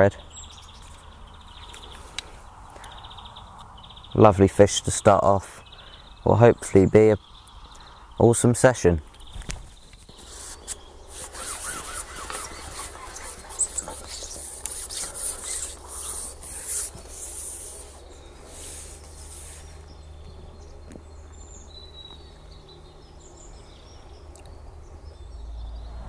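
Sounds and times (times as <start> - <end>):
handling rubbing and rustling: 9.4 - 19.8.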